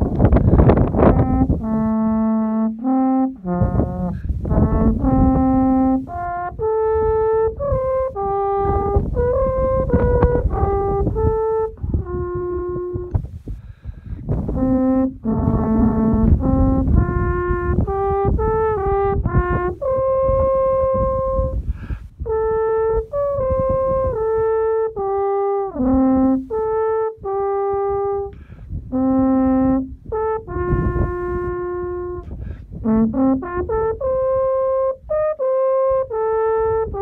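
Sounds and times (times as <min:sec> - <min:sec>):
alphorn playing slow melody: 0:00.0 - 0:13.2, 0:14.3 - 0:21.6, 0:22.2 - 0:37.0.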